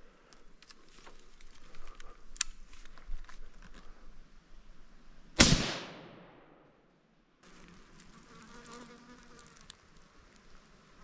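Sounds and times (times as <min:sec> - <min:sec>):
leaves and twigs rustling underfoot: 0:00.0 - 0:04.3, 0:07.4 - 0:11.0
rifle shot echoing: 0:05.4 - 0:06.8.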